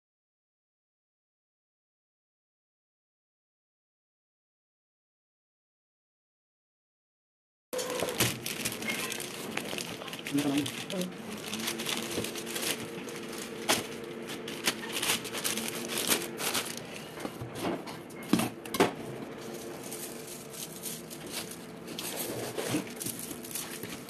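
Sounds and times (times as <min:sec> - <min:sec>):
plastic mailer rustling and tearing: 0:07.8 - 0:17.2, 0:19.3 - 0:24.0
cardboard box rustling: 0:08.3 - 0:17.3, 0:19.4 - 0:24.0.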